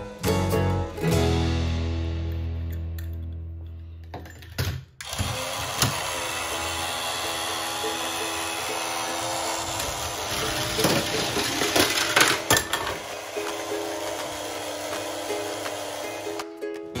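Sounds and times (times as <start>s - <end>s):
toy conveyor whirring: 5.0s - 16.6s
toy car rattling onto track: 9.1s - 14.3s.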